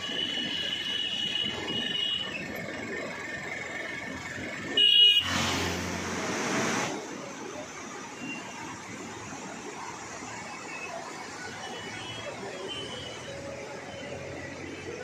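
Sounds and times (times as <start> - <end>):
river rushing: 4.2 - 15.0
vehicle horn: 4.8 - 5.5
rush of noise: 5.2 - 12.5.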